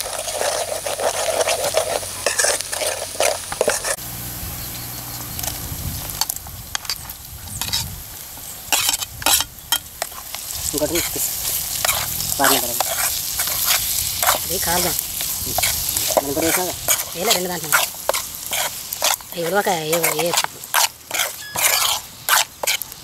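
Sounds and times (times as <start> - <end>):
ladle scraping metal pot: 0.0 - 4.0, 8.7 - 22.9
onions sizzling in oil: 0.0 - 23.0.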